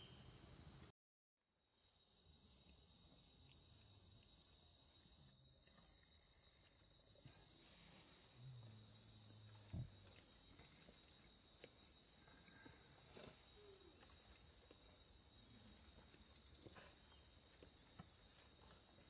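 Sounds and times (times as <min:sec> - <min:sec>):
faint ticks and rustles: 0:02.1 - 0:19.0
steady high hiss: 0:07.1 - 0:12.2.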